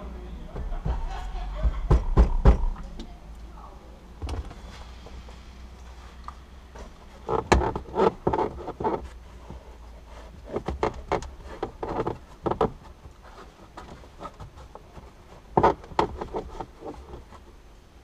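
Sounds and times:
plastic trim clicking and knocking: 7.2 - 9.0, 10.4 - 12.8, 14.4 - 17.2.

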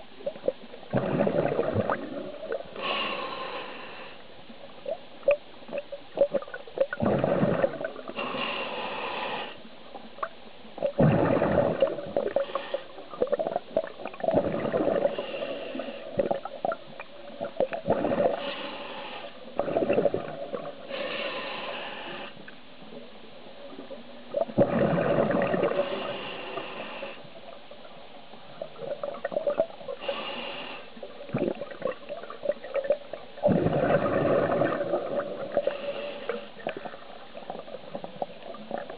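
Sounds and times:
exhaled bubbles gurgling: 0.0 - 3.0, 4.5 - 8.3, 10.0 - 18.6, 19.4 - 21.1, 23.6 - 38.9
regulator hiss on inhale: 2.5 - 4.5, 8.1 - 9.7, 12.2 - 13.2, 15.0 - 16.4, 18.2 - 19.5, 20.8 - 22.6, 25.6 - 27.6, 29.9 - 31.2, 35.4 - 37.2.

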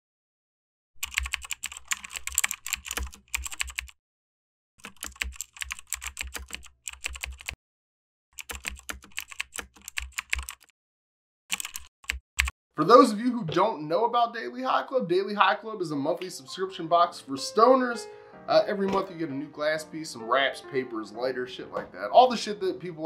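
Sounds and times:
computer keyboard typing: 1.0 - 4.0, 4.8 - 7.6, 8.4 - 10.7, 11.5 - 12.5.

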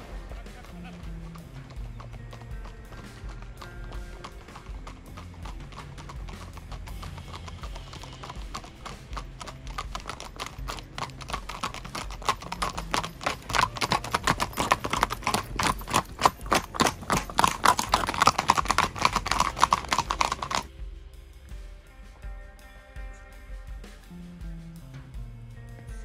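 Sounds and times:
horse hooves clattering on road: 0.0 - 20.7.

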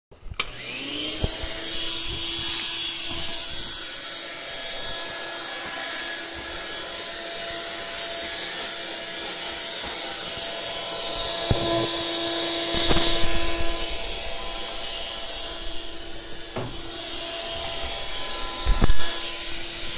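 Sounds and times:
vacuum cleaner motor whine: 0.2 - 19.9
vacuum cleaner switch click: 0.4 - 1.4
floor head rumbling on mats: 16.5 - 17.1
knocks of floor head: 16.6 - 16.9.

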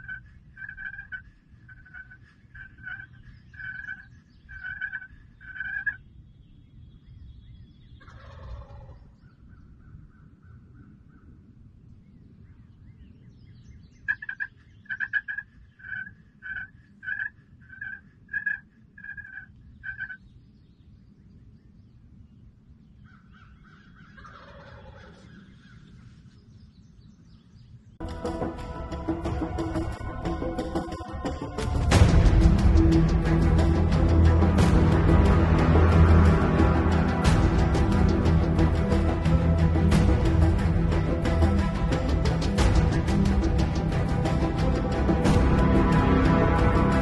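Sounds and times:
turkey gobble: 0.0 - 6.0, 8.0 - 9.0, 14.1 - 20.2, 23.3 - 25.8
turkey yelps: 0.0 - 6.0, 8.0 - 9.0, 14.1 - 20.2, 23.1 - 25.7.

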